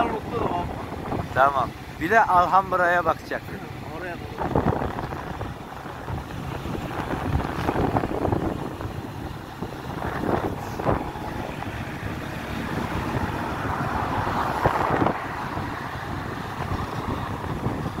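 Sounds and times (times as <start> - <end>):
wind rushing over microphone: 0.0 - 18.0.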